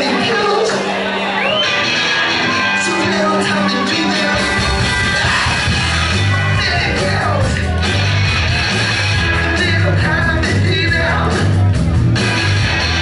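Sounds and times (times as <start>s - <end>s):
person singing: 0.0s - 1.6s, 2.3s - 7.9s, 9.2s - 11.6s
drums: 0.0s - 13.0s
electric bass: 0.0s - 13.0s
electric guitar: 0.0s - 13.0s.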